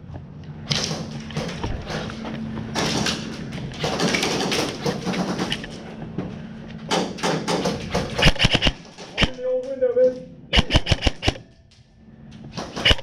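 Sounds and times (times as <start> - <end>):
footsteps: 1.1 - 4.0, 4.6 - 6.9.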